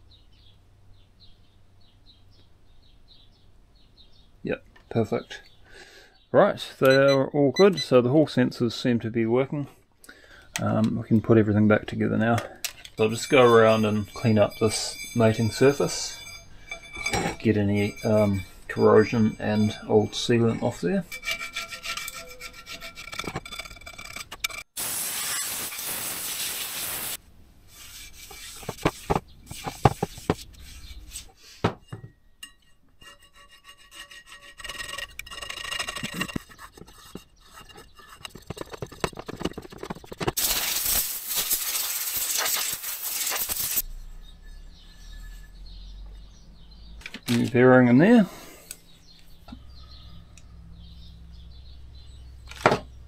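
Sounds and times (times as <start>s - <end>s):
blade scraping metal: 12.9s - 31.4s, 32.4s - 46.4s.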